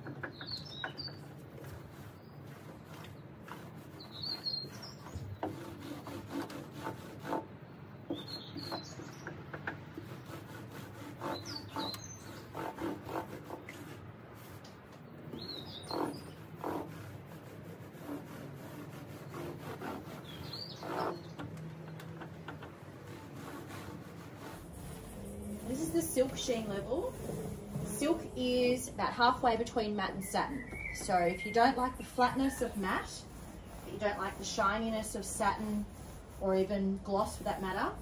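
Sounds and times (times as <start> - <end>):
bird chirps: 8.1 - 9.3, 15.3 - 16.4, 30.2 - 32.8
roller rolling over wood: 20.6 - 35.9.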